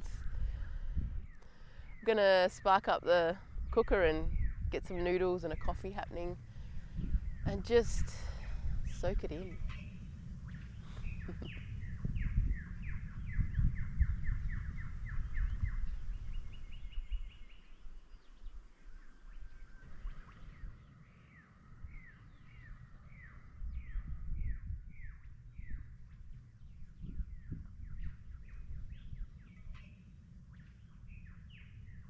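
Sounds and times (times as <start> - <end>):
wind rumble on microphone: 0.0 - 32.0.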